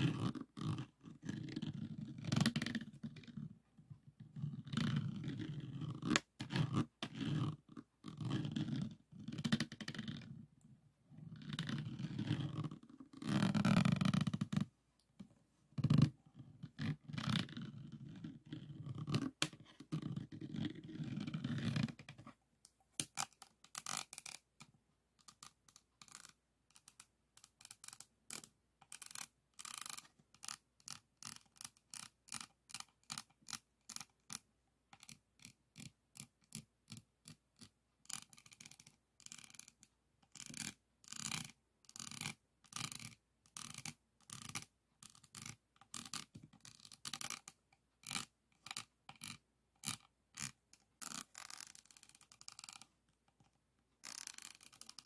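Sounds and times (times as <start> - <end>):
plastic pen scraping resin: 4.3 - 10.3, 11.3 - 14.6, 54.0 - 55.0.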